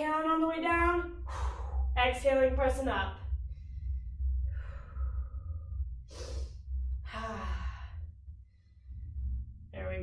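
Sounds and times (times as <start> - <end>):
steady low hum: 0.0 - 10.0
woman breathing hard: 1.2 - 2.0, 3.4 - 9.4.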